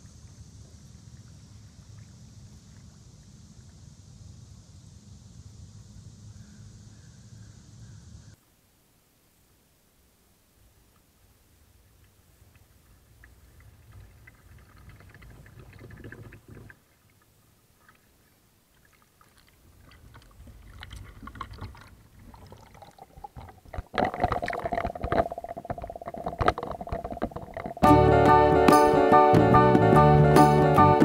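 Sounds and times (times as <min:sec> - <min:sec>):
underwater crackling: 0:12.0 - 0:28.0
water washing and gurgling: 0:12.3 - 0:28.2.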